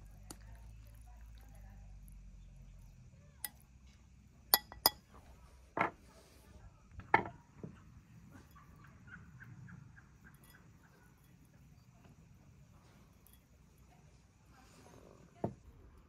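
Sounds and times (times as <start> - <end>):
metal tongs clinking on ceramic bowl: 3.4 - 3.6, 4.5 - 5.0, 10.2 - 11.9, 13.2 - 13.6.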